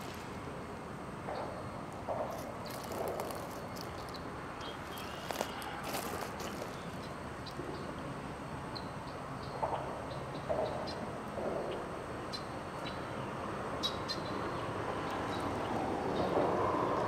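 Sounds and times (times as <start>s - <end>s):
locomotive engine rumble: 0.0s - 7.2s.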